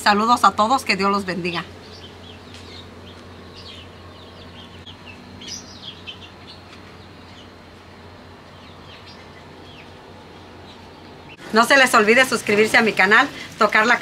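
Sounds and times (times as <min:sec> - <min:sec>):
small birds chirping: 0:00.0 - 0:11.7
low steady hum: 0:00.0 - 0:14.0.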